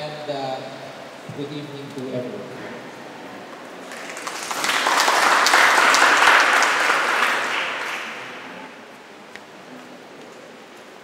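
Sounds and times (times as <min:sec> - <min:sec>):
audience applauding: 0:03.8 - 0:08.7.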